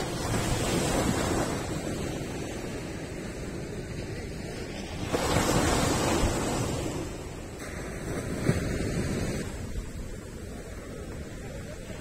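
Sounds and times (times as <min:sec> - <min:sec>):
waves crashing on beach: 0:00.0 - 0:12.0.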